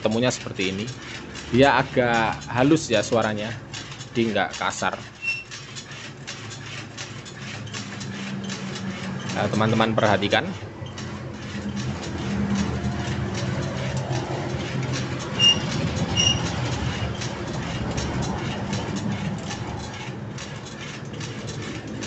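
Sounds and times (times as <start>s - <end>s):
machine clicking rattle: 0.0s - 22.0s
short high squeaks: 5.0s - 9.8s, 14.9s - 17.2s.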